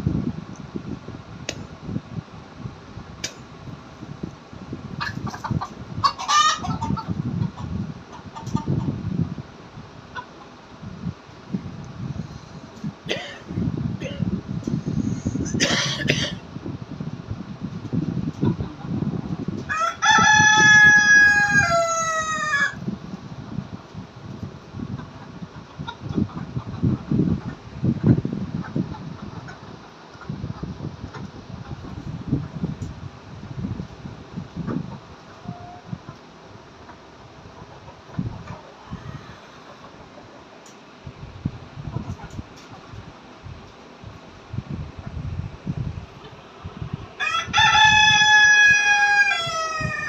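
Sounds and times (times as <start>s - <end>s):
chickens clucking: 4.9s - 9.3s, 10.1s - 10.6s, 17.8s - 22.9s, 24.7s - 32.9s, 34.5s - 40.8s, 41.8s - 43.8s
rooster crowing: 19.7s - 22.8s, 47.2s - 50.0s.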